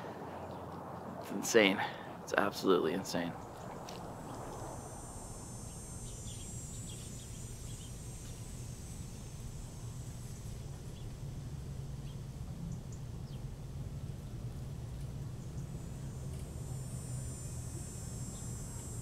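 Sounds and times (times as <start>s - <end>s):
steady low rumble: 0.0s - 19.0s
bird chirps: 5.7s - 8.5s.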